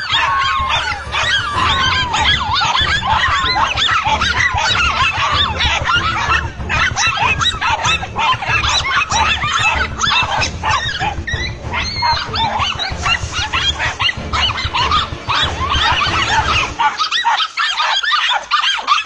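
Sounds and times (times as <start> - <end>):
steady low rumble: 0.0 - 16.9
dogs yelping and barking: 0.0 - 19.0.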